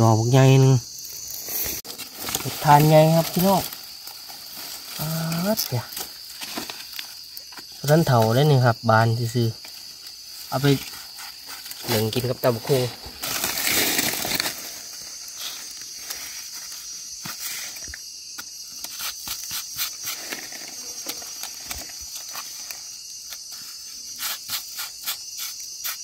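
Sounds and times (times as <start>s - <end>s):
high-pitched insect chorus: 0.0s - 26.0s
rustle: 0.4s - 26.0s
knife scraping mushroom stem: 23.2s - 26.0s.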